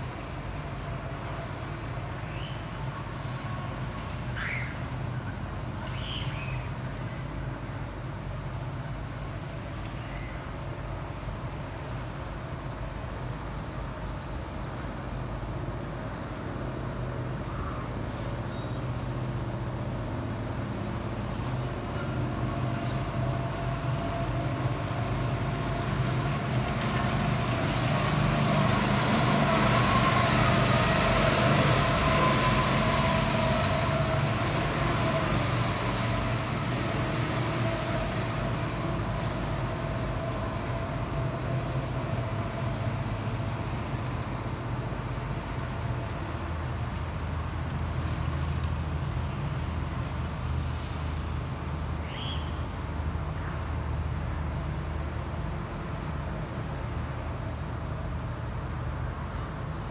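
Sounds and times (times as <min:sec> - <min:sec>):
go-kart engines passing: 0:22.2 - 0:44.4.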